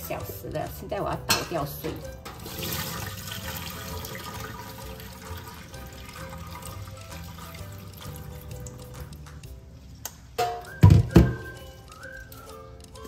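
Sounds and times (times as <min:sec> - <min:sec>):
background music: 0:00.0 - 0:13.0
water pouring and draining: 0:02.1 - 0:09.4.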